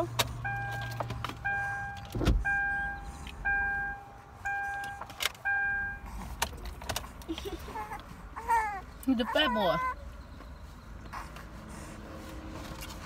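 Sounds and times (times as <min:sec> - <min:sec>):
car warning chime dinging: 0:00.4 - 0:06.1.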